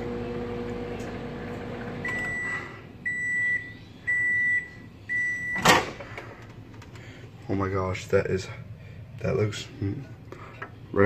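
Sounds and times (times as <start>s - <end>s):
microwave oven humming: 0.0s - 8.2s.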